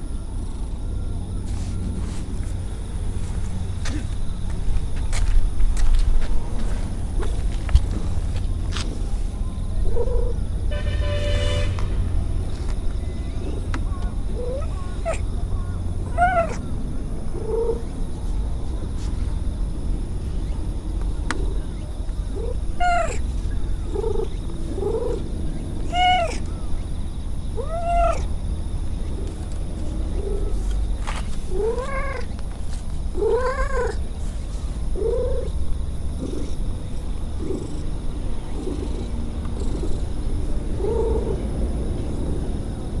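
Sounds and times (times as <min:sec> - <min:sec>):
cat meowing: 0:16.1 - 0:16.6, 0:22.4 - 0:23.2, 0:25.8 - 0:26.5, 0:27.6 - 0:28.3, 0:31.5 - 0:32.3, 0:33.2 - 0:34.0
cat purring: 0:36.2 - 0:41.4.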